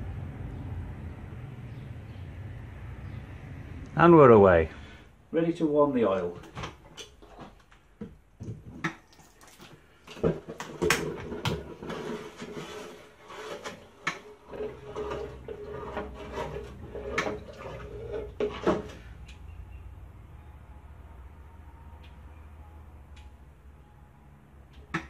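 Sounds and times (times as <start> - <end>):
low hum: 0.0 - 5.2.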